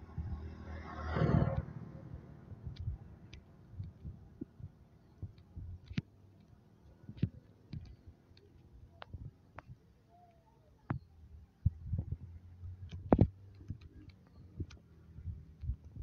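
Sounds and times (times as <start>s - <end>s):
soft low thumps: 0.0s - 0.6s, 1.2s - 6.1s, 10.9s - 13.8s, 14.5s - 16.0s
low rumble: 0.0s - 5.8s
faint irregular clicks: 1.5s - 16.0s.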